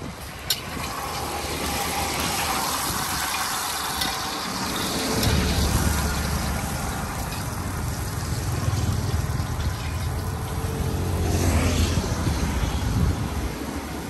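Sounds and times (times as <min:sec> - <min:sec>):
low rumble of traffic: 0:00.0 - 0:14.0
vehicle passing: 0:04.7 - 0:14.0.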